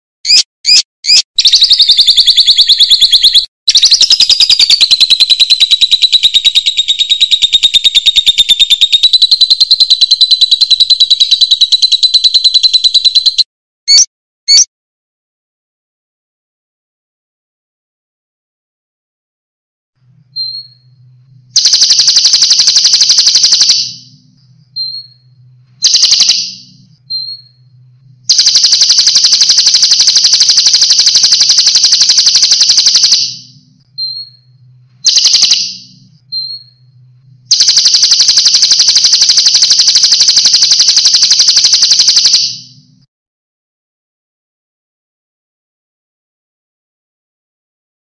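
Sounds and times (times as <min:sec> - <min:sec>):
thin bird whistle: 0:00.3 - 0:09.2, 0:13.9 - 0:14.7, 0:26.2 - 0:27.6.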